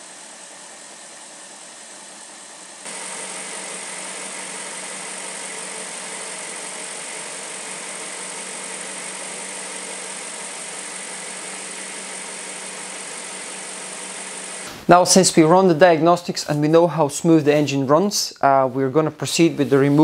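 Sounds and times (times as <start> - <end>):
car engine idling: 2.9 - 14.7.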